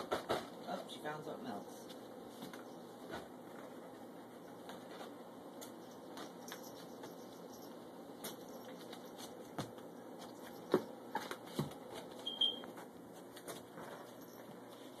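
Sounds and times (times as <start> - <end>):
brief high squeak: 12.2 - 12.7.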